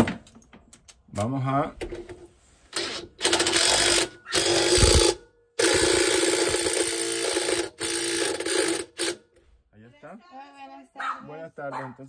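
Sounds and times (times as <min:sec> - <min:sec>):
power driver bursts: 0:02.8 - 0:09.2.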